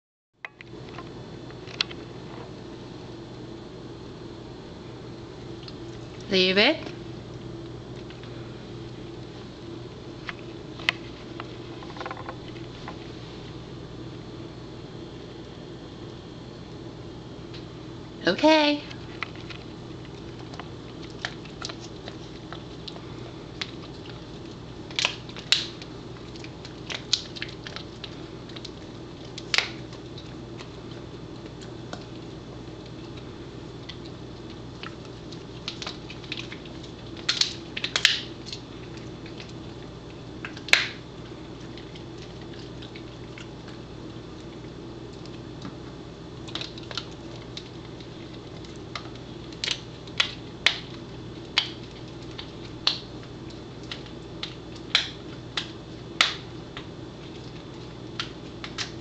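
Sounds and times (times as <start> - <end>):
steady low hum: 0.4 - 59.0
dog chewing crunchy treat: 19.0 - 59.0.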